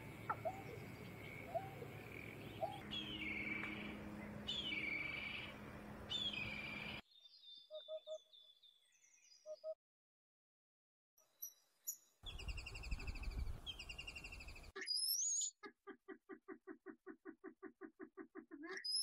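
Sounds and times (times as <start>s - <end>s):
steady background hum: 0.0s - 7.0s
birds chirping: 0.0s - 9.6s, 11.9s - 15.5s.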